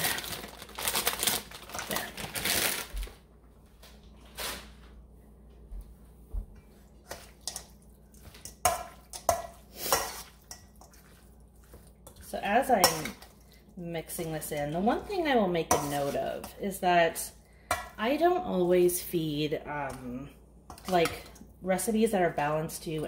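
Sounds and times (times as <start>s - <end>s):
plastic bag crinkling: 0.0s - 3.2s
spoon scraping steel bowl: 7.1s - 13.3s, 15.0s - 16.6s.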